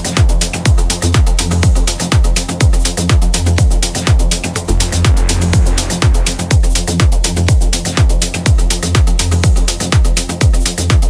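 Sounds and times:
crisp hi-hats: 0.0 - 7.9
four-on-the-floor kick drum: 0.7 - 11.0
sustained bassline: 3.5 - 7.7.

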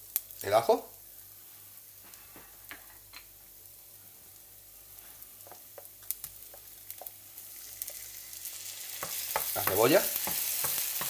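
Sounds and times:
garlic sizzling in a pan: 0.0 - 11.0
oil popping and crackling: 4.9 - 11.0.

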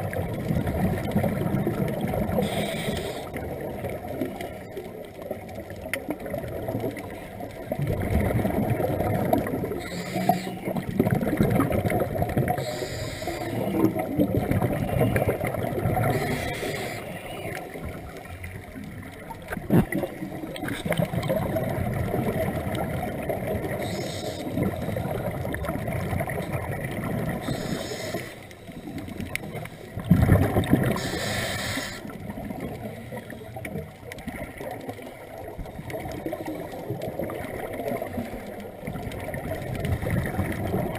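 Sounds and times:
exhaled air bubbling: 0.0 - 40.9
scuba regulator inhale hiss: 2.4 - 3.4, 9.8 - 10.7, 12.6 - 13.8, 16.2 - 17.4, 23.8 - 24.6, 27.4 - 28.5, 30.9 - 32.2.

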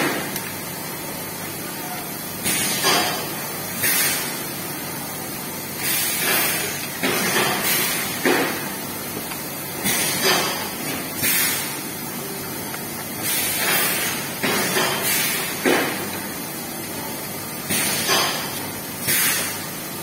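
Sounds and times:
machine hiss: 2.4 - 4.6, 5.7 - 8.9, 9.8 - 11.8, 13.1 - 16.1, 17.6 - 19.8.

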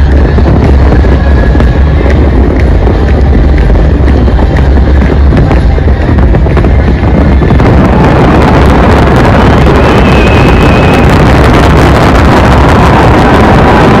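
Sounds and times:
fireworks booming and crackling: 0.0 - 14.0
firework whistle: 9.2 - 14.0.

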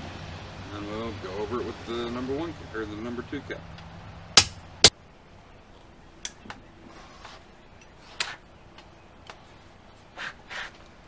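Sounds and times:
hammer striking metal: 4.4 - 4.6.

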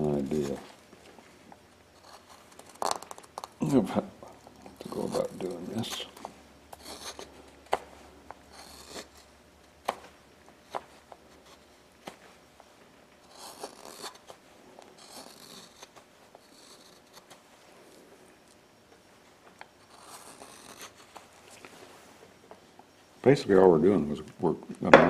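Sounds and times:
carving gouge scraping wood: 2.0 - 3.5, 4.7 - 6.1, 6.7 - 7.3, 8.5 - 9.3, 13.2 - 14.4, 15.0 - 17.4, 19.8 - 21.3.

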